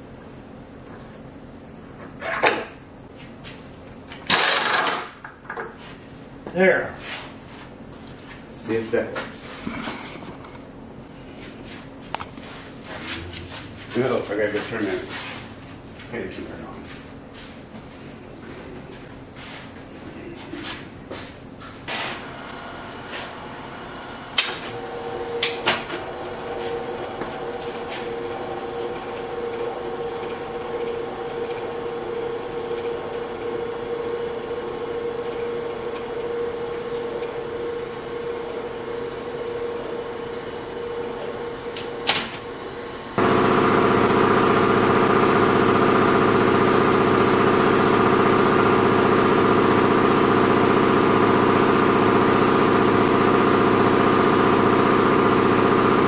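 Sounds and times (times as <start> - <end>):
milling machine humming: 22.2 - 56.0.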